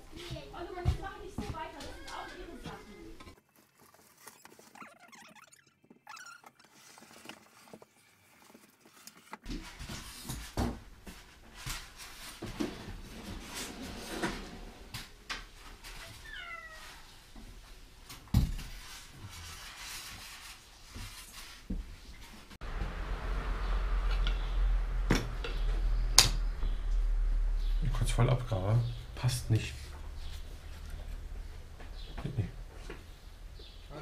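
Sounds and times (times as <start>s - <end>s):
packing pieces rustling: 3.3s - 5.1s.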